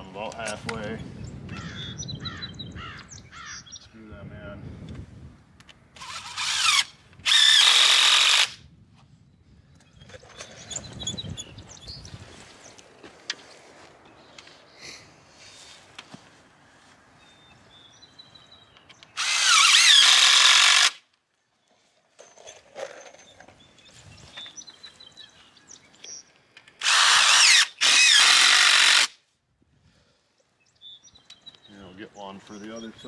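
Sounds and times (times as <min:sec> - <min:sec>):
cordless drill driving screws: 0:06.0 - 0:08.6, 0:19.1 - 0:21.0, 0:26.8 - 0:29.2.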